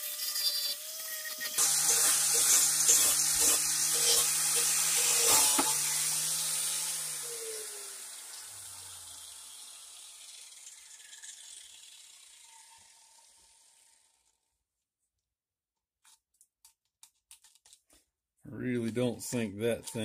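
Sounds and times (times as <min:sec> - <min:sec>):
grinder hissing on metal: 0:00.0 - 0:14.3
grinder motor hum: 0:00.0 - 0:14.4.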